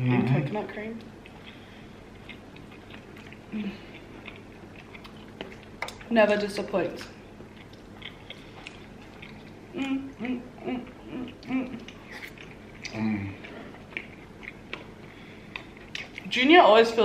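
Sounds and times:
person humming while chewing: 3.2 - 5.2, 8.0 - 14.9.

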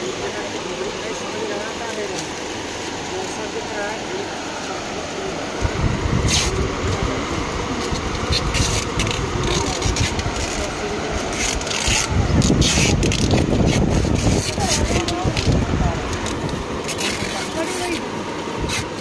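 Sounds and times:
handling noise on microphone: 7.8 - 18.0.

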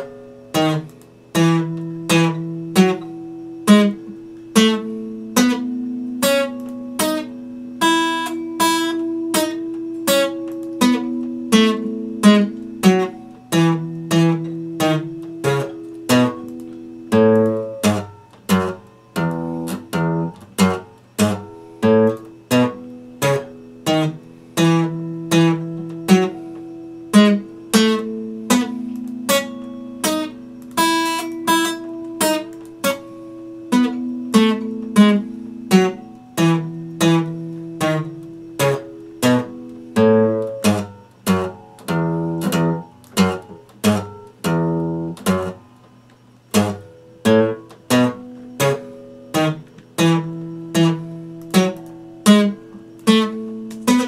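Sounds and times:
acoustic guitar played with a pick: 0.0 - 54.0.

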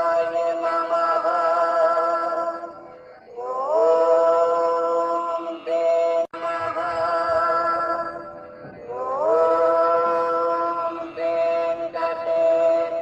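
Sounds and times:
voice chanting long held notes: 0.0 - 13.0.

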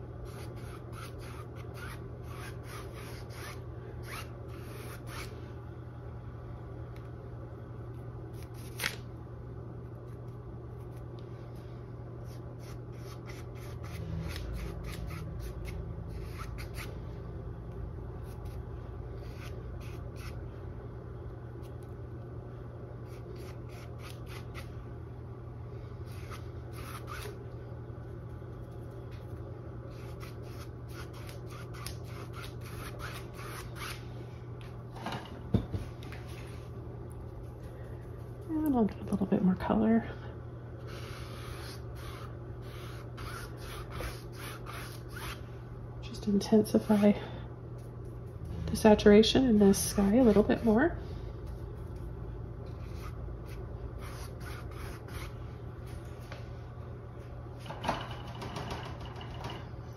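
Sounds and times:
steady low hum: 0.0 - 59.9
paintbrush scrubbing on canvas: 52.7 - 56.0.

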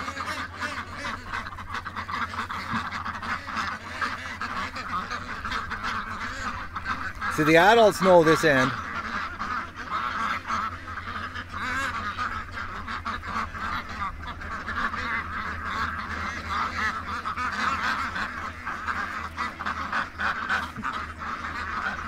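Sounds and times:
ducks quacking: 0.0 - 22.0.

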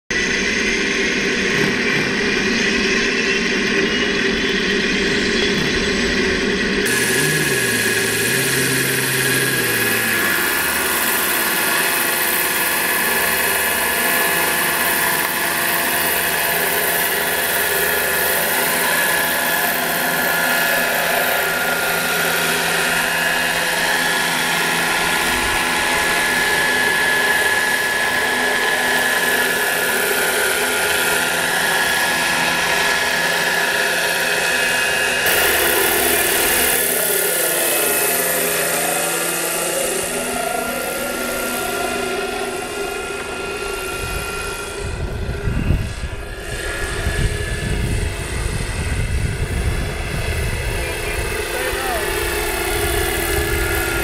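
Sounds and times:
model helicopter motor whine: 0.1 - 54.0
rotor blades beating: 0.1 - 54.0.

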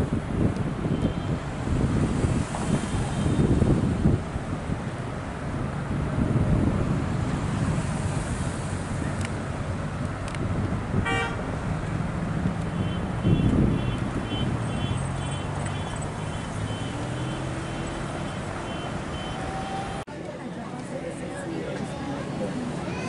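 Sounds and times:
road traffic: 0.0 - 23.0
short horn toot: 11.0 - 11.4.

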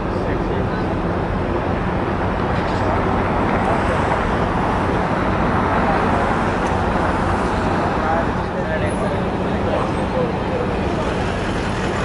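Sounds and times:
street noise: 0.0 - 12.0.

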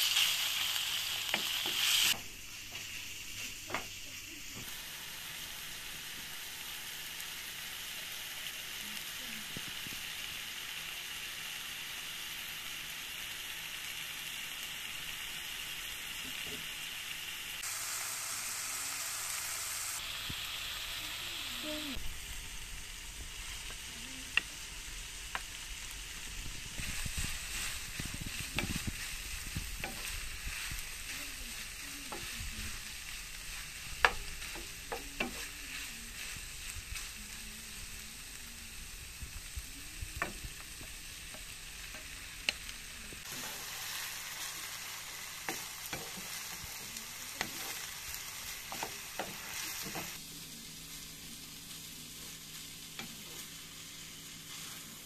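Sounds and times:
meat sizzling in a pan: 0.0 - 55.0
wooden spatula scraping pan: 26.7 - 37.0.

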